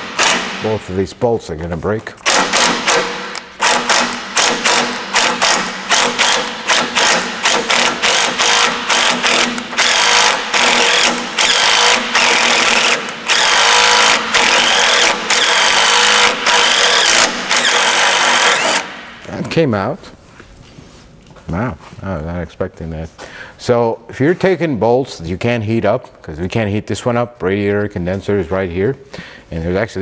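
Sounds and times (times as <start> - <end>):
impact wrench hammering on bolt: 0.0 - 0.8, 2.2 - 19.1.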